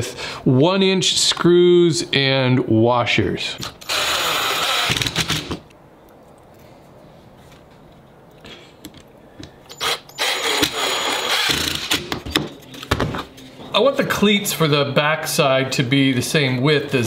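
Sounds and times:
cordless driver sinking screw: 3.6s - 5.6s, 9.7s - 12.0s.

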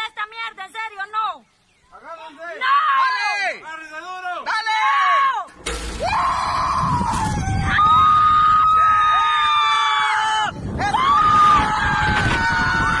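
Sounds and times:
people screaming: 4.8s - 13.0s.

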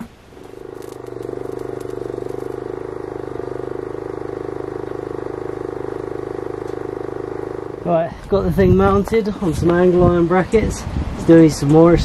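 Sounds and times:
small engine running: 0.4s - 9.1s.

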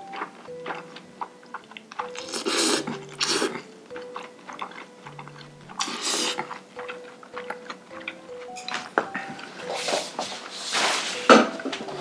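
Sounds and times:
hissing slurps: 0.0s - 8.8s
wet chewing clicks: 0.0s - 10.1s.

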